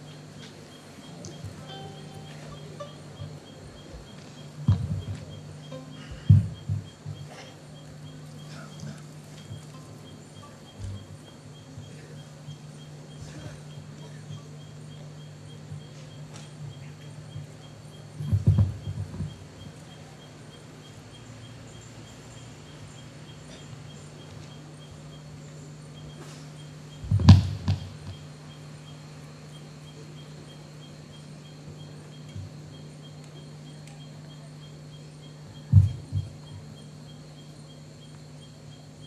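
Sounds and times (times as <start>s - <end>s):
low electrical hum: 0.0s - 39.0s
dull thumps: 3.2s - 5.4s, 6.0s - 7.6s, 18.2s - 19.4s, 27.0s - 28.2s, 35.7s - 36.6s.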